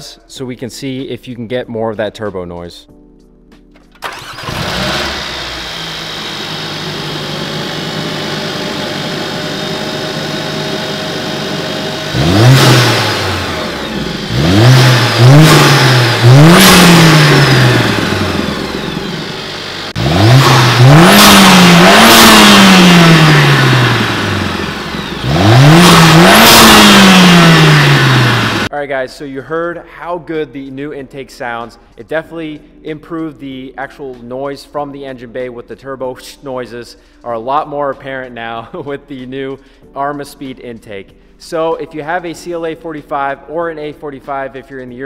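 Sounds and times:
car engine starting and idling: 0:03.9 - 0:28.7
car engine revving in blips: 0:04.1 - 0:28.7.

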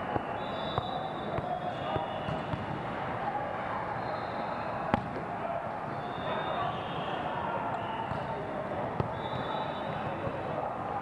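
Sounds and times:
many overlapping voices: 0:00.0 - 0:11.0
volleyballs being hit: 0:00.1 - 0:02.9, 0:04.9 - 0:05.4, 0:08.0 - 0:09.2.

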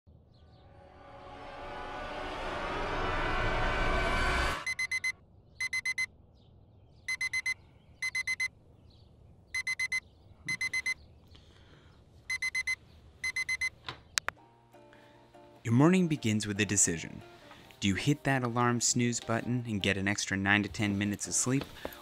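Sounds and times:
loud rising swell of sound: 0:00.4 - 0:04.9
digital alarm clock beeping: 0:04.6 - 0:06.1, 0:07.1 - 0:08.5, 0:09.6 - 0:11.0, 0:12.3 - 0:13.8.

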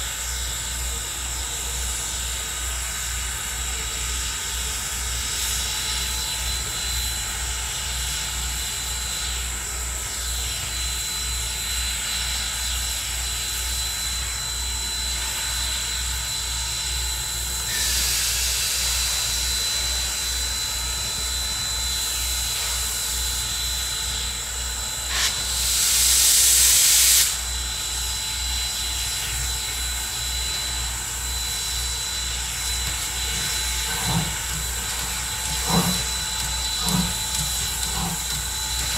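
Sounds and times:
steam locomotive hissing steam: 0:00.0 - 0:38.9
loud blast of steam: 0:17.7 - 0:19.2, 0:25.1 - 0:27.5
fast low pulsing: 0:32.5 - 0:38.9.

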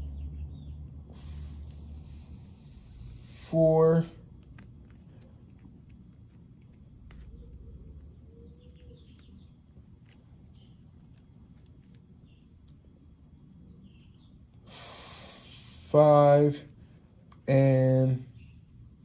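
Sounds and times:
distant bird chirps: 0:00.0 - 0:03.8, 0:07.2 - 0:10.8.

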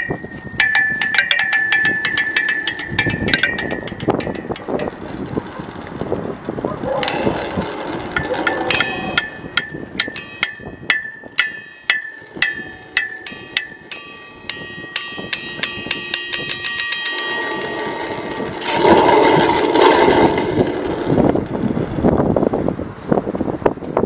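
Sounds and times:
bell struck with wooden beaters: 0:00.0 - 0:04.9, 0:08.2 - 0:19.0
wind rushing on microphone: 0:00.0 - 0:24.0.

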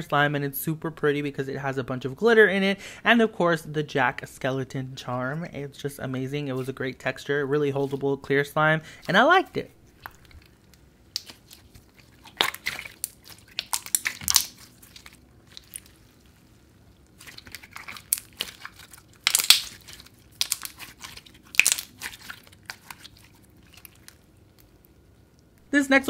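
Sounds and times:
slime squeezed with sticky pops: 0:11.1 - 0:16.0, 0:17.1 - 0:24.3.

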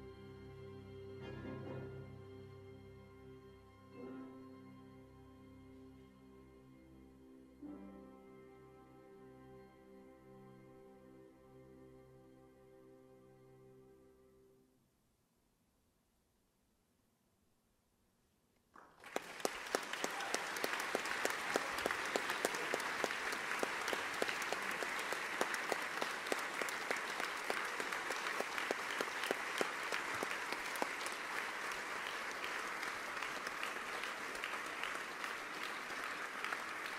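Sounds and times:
audience applause: 0:18.8 - 0:36.9.

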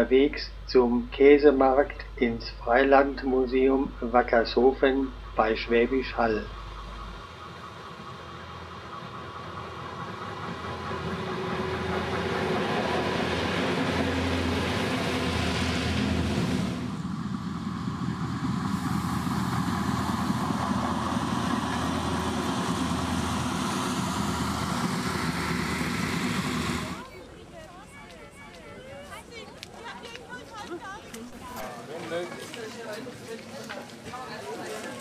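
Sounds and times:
railbus engine drone: 0:00.0 - 0:32.1
train running gear: 0:06.8 - 0:31.3
hiss: 0:18.7 - 0:21.8.

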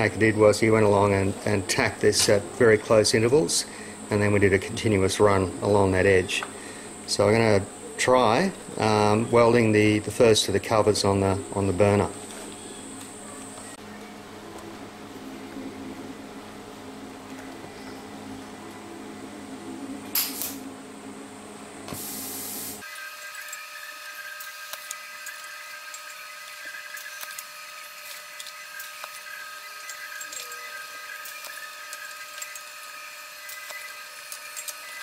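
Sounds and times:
welding arc buzzing whine: 0:00.0 - 0:35.0
short hiss: 0:20.2 - 0:20.6, 0:21.9 - 0:22.8.

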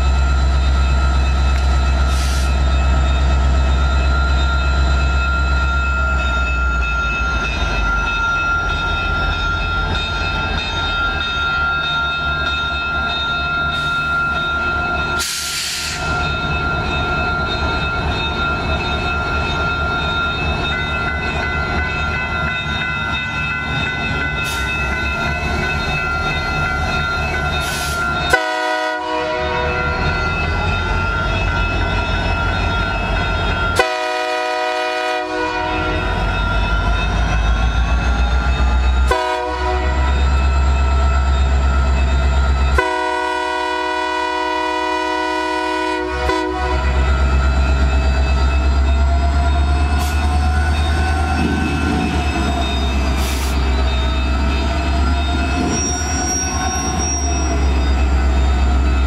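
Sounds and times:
train horn blasts: 0:28.3 - 0:29.7, 0:33.8 - 0:36.1, 0:39.1 - 0:40.2, 0:42.8 - 0:47.0.

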